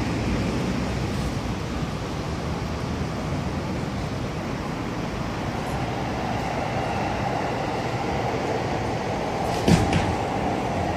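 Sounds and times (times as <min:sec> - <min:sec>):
city street rumble: 0:00.0 - 0:10.9
sharp knock: 0:09.6 - 0:10.2.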